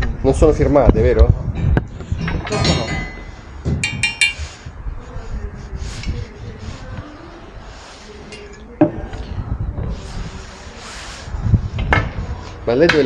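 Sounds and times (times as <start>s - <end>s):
metal figures clinking on glass: 2.2s - 4.5s.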